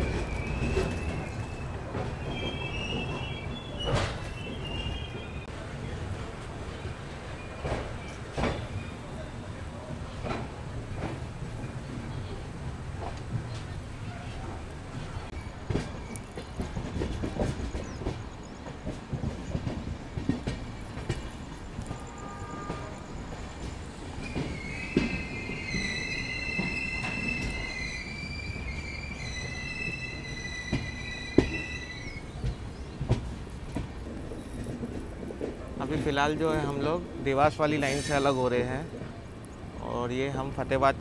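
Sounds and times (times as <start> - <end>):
high wavering wheel squeal: 0.0 - 5.5, 24.2 - 32.3
train wheels knocking over rail joints: 15.6 - 27.7, 30.6 - 36.6.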